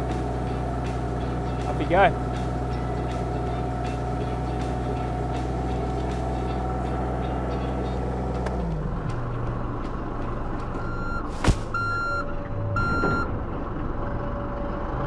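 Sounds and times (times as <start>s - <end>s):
diesel engine running: 0.0s - 15.0s
reversing alarm beeps: 10.8s - 13.3s.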